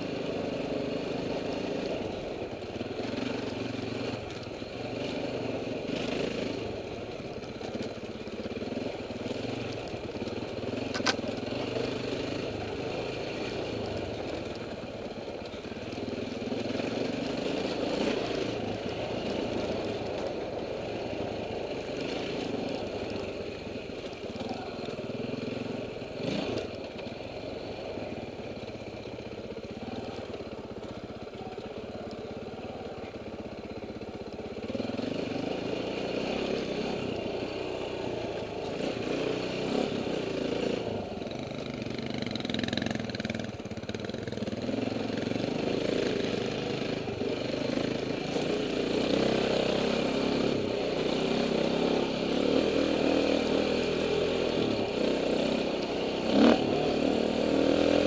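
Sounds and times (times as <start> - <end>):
dirt bike engine revving: 24.4 - 26.8, 44.3 - 58.0.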